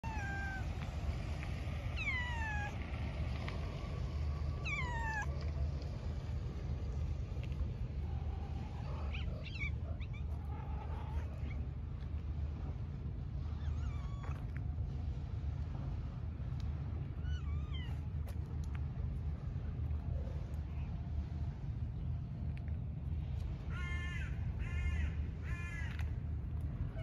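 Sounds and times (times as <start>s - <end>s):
cat meowing: 0.0s - 0.7s, 2.0s - 2.8s, 4.6s - 5.3s
low rumble: 0.0s - 27.0s.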